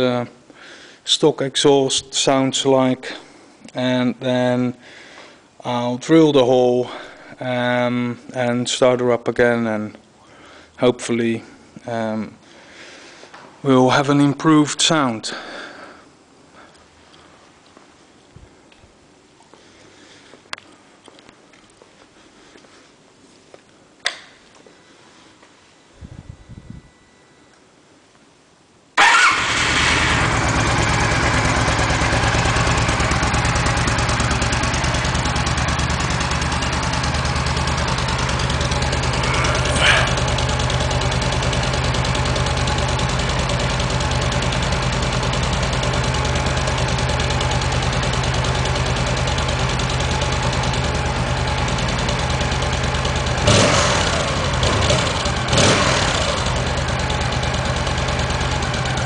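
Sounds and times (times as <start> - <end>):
motorcycle engine idling: 29.0 - 59.0.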